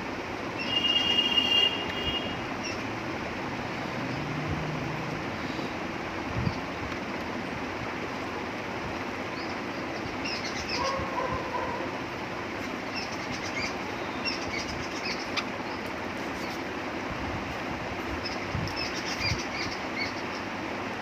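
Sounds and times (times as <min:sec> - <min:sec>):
small birds chirping: 0:02.6 - 0:03.0, 0:09.2 - 0:11.9, 0:12.5 - 0:16.8, 0:18.1 - 0:20.8.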